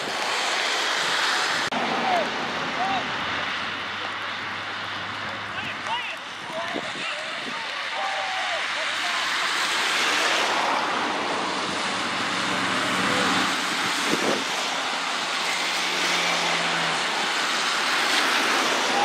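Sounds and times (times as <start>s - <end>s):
wind on microphone: 10.4s - 15.2s.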